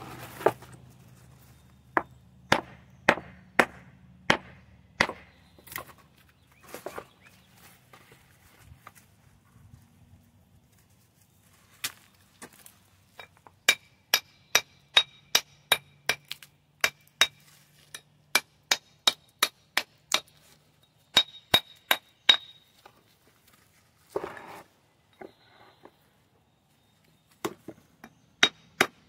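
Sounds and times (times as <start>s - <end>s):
rough scrape: 0.0s - 0.8s, 24.0s - 24.8s
hammer striking stone with metallic ring: 13.7s - 16.2s.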